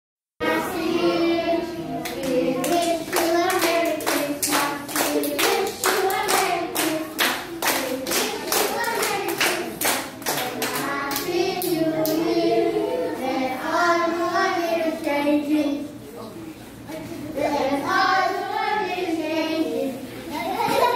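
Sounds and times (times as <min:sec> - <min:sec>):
group singing: 0:00.4 - 0:15.8, 0:17.4 - 0:20.1
hands clapping in rhythm: 0:02.0 - 0:12.2.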